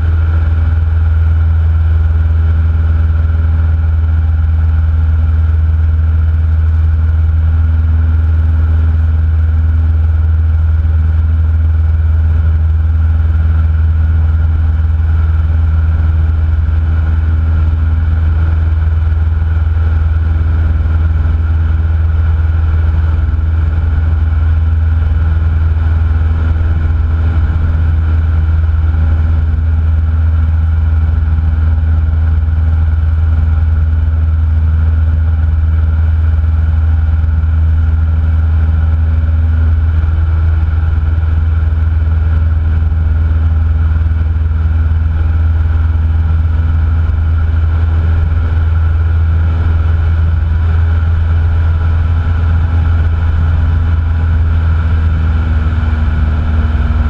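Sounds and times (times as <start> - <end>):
propeller plane engine drone: 0.0 - 57.0.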